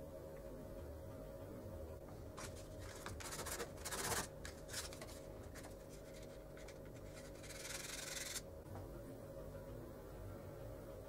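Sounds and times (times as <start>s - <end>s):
scraping magnesium rod on wood: 6.1s - 8.4s.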